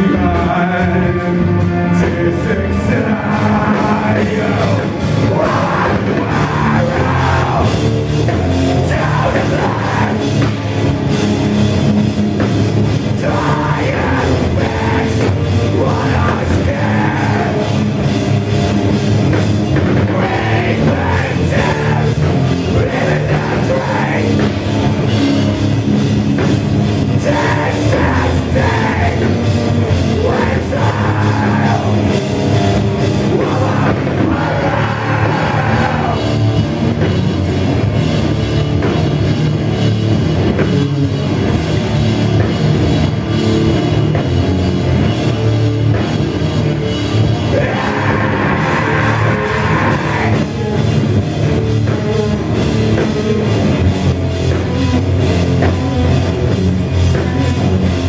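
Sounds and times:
live heavy rock band: 0.0 - 58.0
person singing or shouting: 2.0 - 10.6, 13.0 - 18.1, 19.8 - 25.0, 27.0 - 36.6, 47.4 - 51.0.

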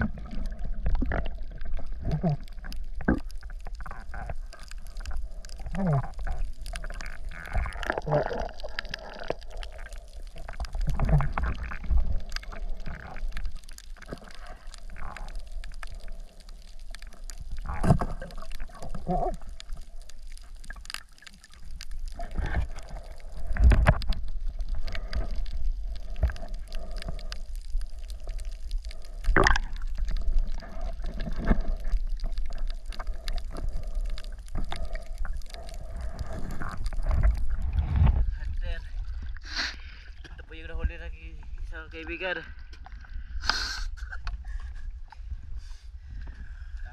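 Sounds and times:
water sloshing and gurgling: 0.0 - 46.9.

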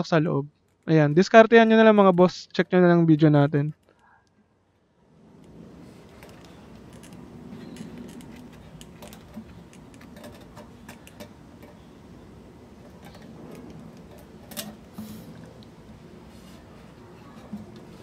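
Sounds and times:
plastic parts clicking and tapping: 6.1 - 11.9.

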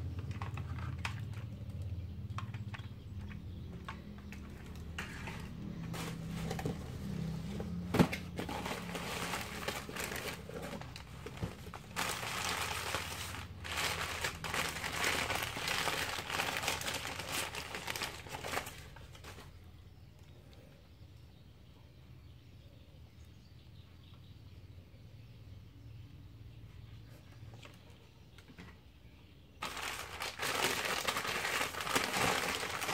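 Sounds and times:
paper crumpling: 8.4 - 19.5, 29.6 - 32.9.

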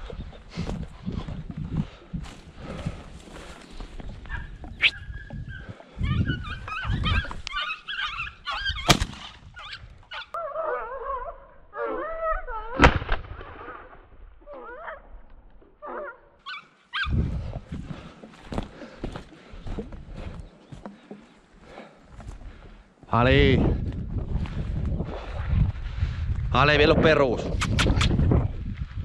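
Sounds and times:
footsteps on dry ground: 0.0 - 7.8, 17.0 - 27.2, 28.2 - 29.0
hounds yelping: 4.2 - 9.0, 9.6 - 12.8, 14.5 - 15.1, 15.8 - 17.2.

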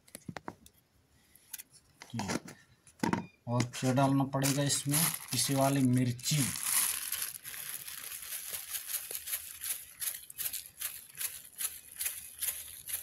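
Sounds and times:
plastic bag crinkling: 4.4 - 13.0.

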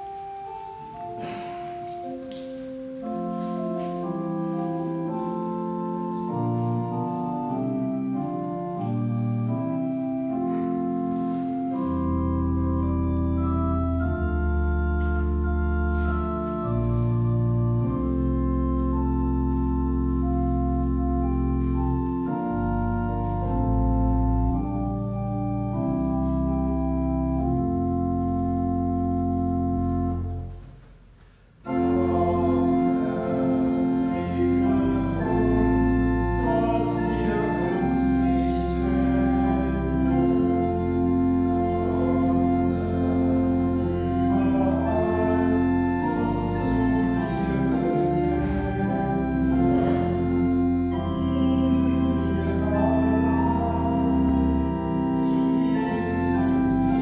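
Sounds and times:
church organ playing chords: 0.0 - 57.0.

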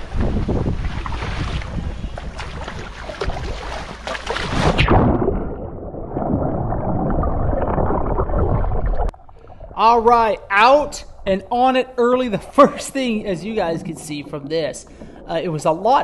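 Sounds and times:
wind on microphone: 0.0 - 5.2
low underwater rush: 0.0 - 16.0
water splashing: 0.0 - 16.0.

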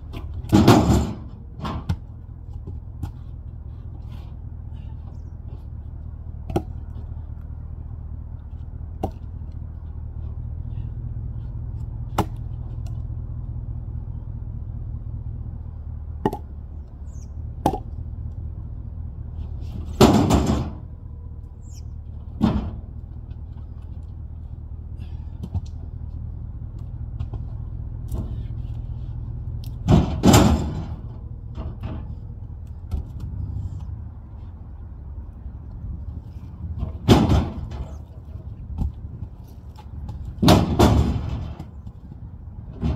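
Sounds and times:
logs landing with thuds: 0.0 - 5.7, 6.4 - 7.2, 8.5 - 9.6, 11.8 - 13.1, 16.1 - 16.6, 17.5 - 18.0, 19.5 - 21.0, 22.1 - 24.2, 25.0 - 34.0, 36.3 - 42.9
steady low rumble: 0.0 - 42.9.

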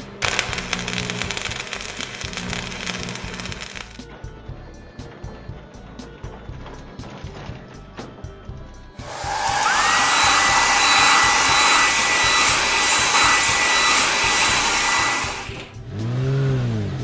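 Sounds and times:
blow dryer air rushing with whine: 9.0 - 15.8
car engine revving: 9.0 - 17.0.

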